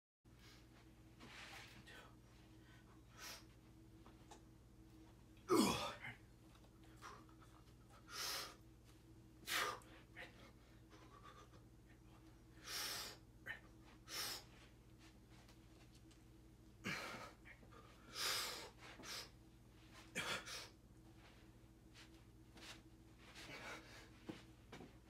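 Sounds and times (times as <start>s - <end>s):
man grunting: 5.5s - 6.2s.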